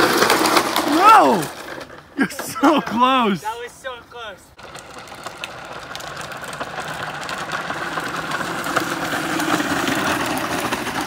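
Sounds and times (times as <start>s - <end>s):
plastic wheels rolling on concrete: 0.0s - 11.0s.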